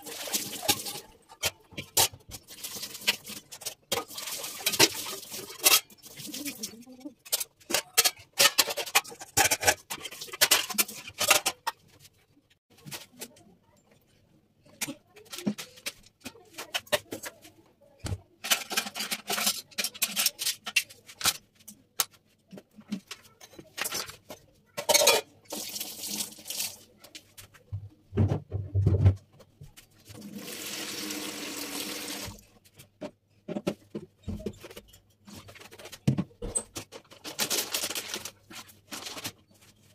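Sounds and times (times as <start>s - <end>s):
tap water running: 0.0s - 1.0s, 25.5s - 26.8s, 30.2s - 32.4s
pots and bowls clanking: 0.0s - 11.8s, 23.4s - 25.8s.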